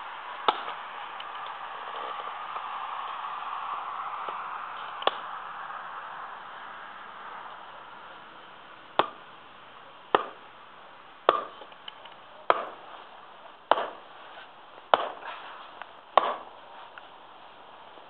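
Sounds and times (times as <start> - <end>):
axe chopping wooden log: 0.5 - 0.8, 9.0 - 9.2, 10.1 - 10.4, 11.2 - 13.0, 13.7 - 14.1, 14.9 - 16.6.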